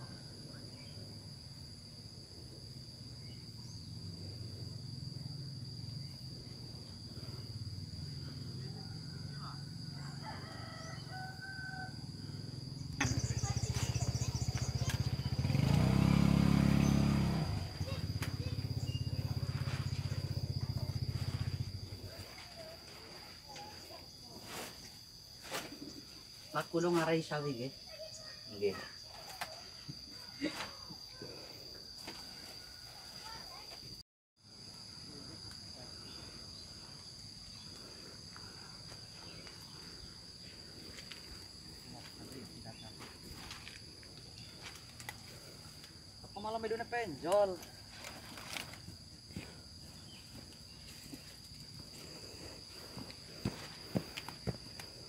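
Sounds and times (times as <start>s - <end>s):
insects droning: 0.0s - 55.0s
rooster crowing: 8.7s - 12.3s
small engine running: 12.9s - 22.1s.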